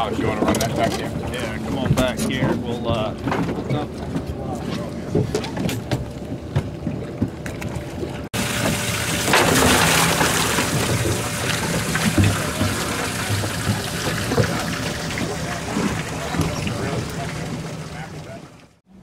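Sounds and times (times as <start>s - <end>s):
rushing water: 8.3s - 18.8s.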